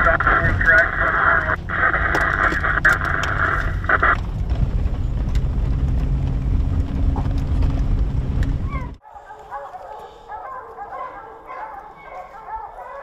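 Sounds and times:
loud radio hiss: 0:00.0 - 0:04.2
engine and tyre rumble: 0:00.0 - 0:09.0.

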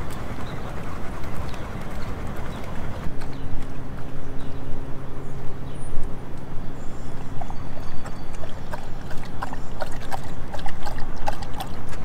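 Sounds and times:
dog lapping water: 0:00.0 - 0:04.1, 0:07.2 - 0:12.0
low hum: 0:00.0 - 0:12.0.

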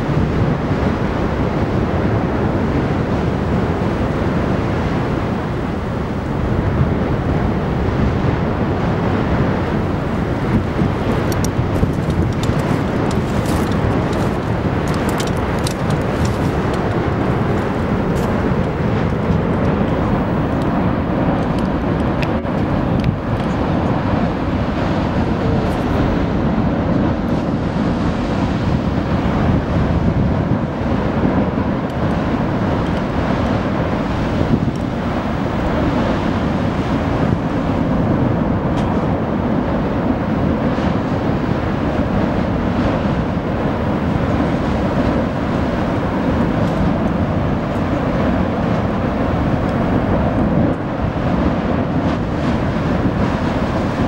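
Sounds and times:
lava lake roaring: 0:00.0 - 0:54.0
faint crackles: 0:11.2 - 0:19.4.

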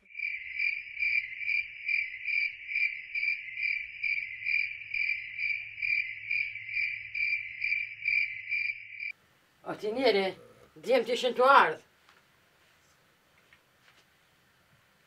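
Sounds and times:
cricket chirping: 0:00.0 - 0:09.2.

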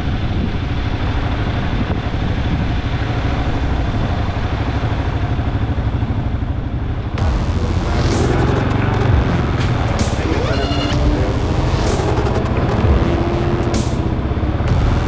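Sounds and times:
road and air noise: 0:00.0 - 0:15.0
motorcycle engine droning: 0:05.2 - 0:15.0.

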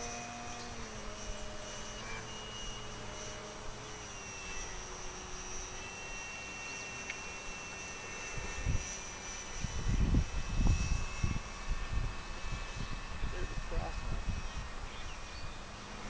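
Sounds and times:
model plane electric motor whining: 0:00.0 - 0:16.0.

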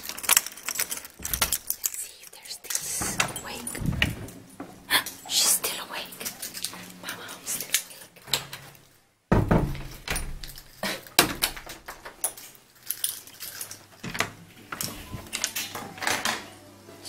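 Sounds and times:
keys jangling: 0:00.0 - 0:04.1, 0:09.9 - 0:11.1, 0:11.8 - 0:14.2.

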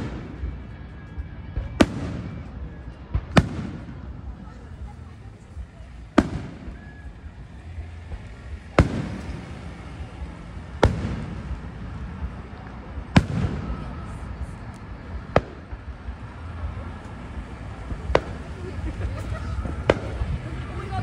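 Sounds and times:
fireworks bangs: 0:00.0 - 0:21.0
steady low rumble: 0:00.0 - 0:21.0.

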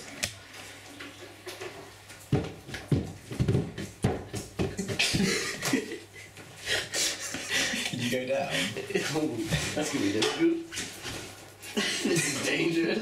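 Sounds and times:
thumps on carpeted stairs: 0:02.3 - 0:05.4.

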